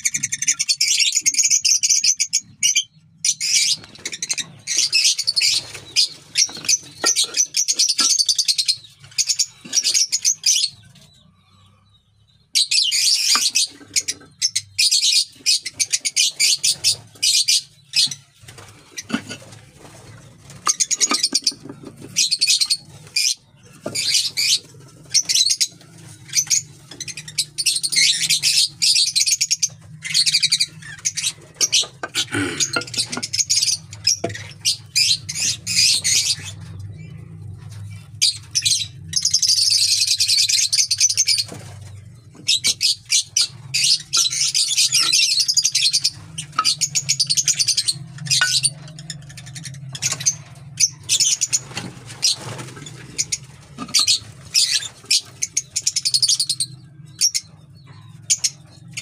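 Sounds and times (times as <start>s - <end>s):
lovebirds chirping: 0.0s - 59.0s.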